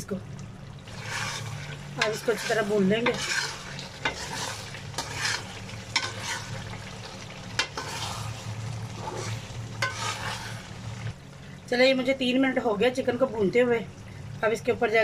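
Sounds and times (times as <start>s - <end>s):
food sizzling in a metal pan: 0.7s - 11.2s
metal spoon scraping pan: 1.0s - 6.6s, 7.6s - 8.3s, 9.0s - 10.6s.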